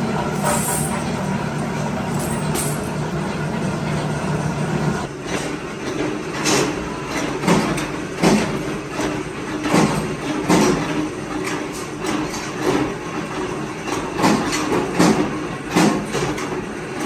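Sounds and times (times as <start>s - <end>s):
machine hum: 0.0s - 7.0s
power press stamping metal: 5.1s - 13.1s, 13.7s - 17.0s.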